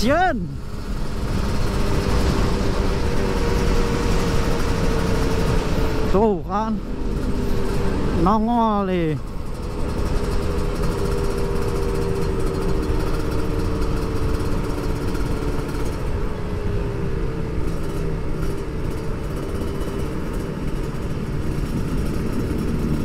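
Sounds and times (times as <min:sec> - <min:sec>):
motorcycle engine cruising: 0:00.0 - 0:23.0
road and wind noise: 0:00.0 - 0:23.0.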